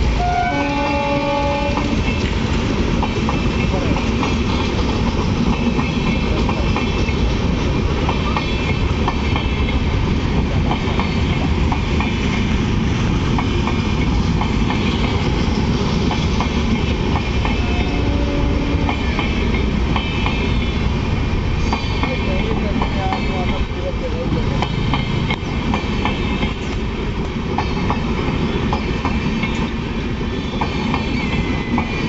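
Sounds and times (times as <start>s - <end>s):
train coaches rumbling past: 0.0s - 32.0s
wheels clicking over rail joints: 0.5s - 20.6s.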